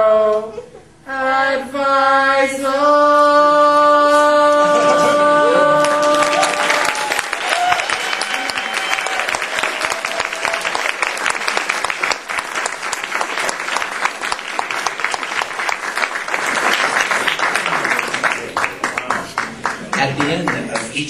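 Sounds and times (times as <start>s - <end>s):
audience applauding: 5.6s - 21.0s.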